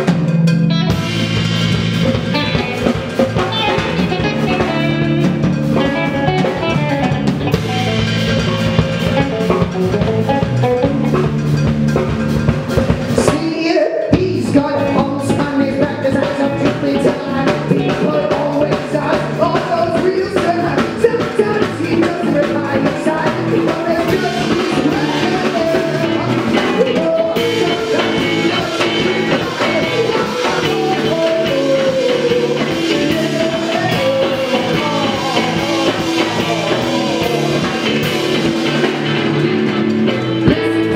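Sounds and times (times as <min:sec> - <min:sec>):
drum kit: 0:00.0 - 0:40.9
electric guitars: 0:00.0 - 0:40.9
person singing: 0:02.1 - 0:11.1, 0:13.2 - 0:40.9.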